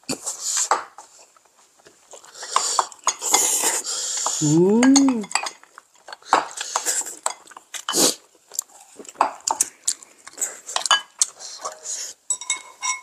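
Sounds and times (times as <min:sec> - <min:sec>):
person humming: 0:04.4 - 0:05.3.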